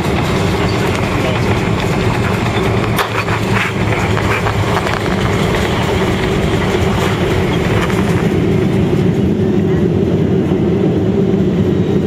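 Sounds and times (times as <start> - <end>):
rattles and knocks: 0.0 - 9.1
airplane cabin rumble: 0.0 - 12.0.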